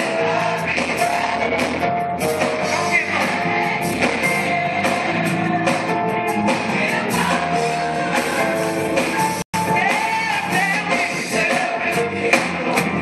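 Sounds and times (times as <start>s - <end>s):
large choir singing: 0.0s - 9.4s
live band playing: 0.0s - 13.0s
steady drum beat: 0.0s - 13.0s.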